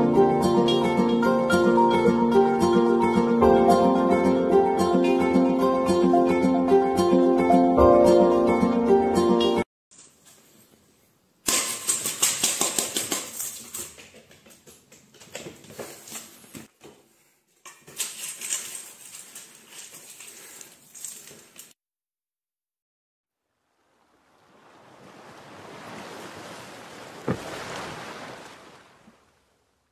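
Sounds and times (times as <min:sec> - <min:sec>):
dry cat food crunching in metal bowl: 0:17.7 - 0:21.6.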